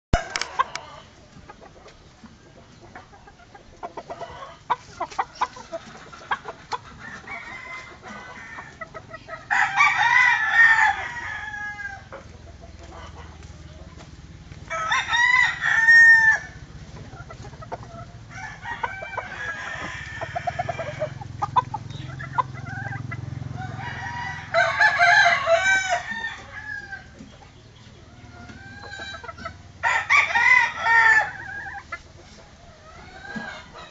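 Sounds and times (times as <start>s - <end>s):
chickens clucking: 0.1s - 33.9s
rooster crowing: 7.0s - 8.8s, 9.5s - 12.1s, 14.7s - 16.6s, 18.3s - 21.2s, 23.0s - 27.1s, 29.8s - 31.8s.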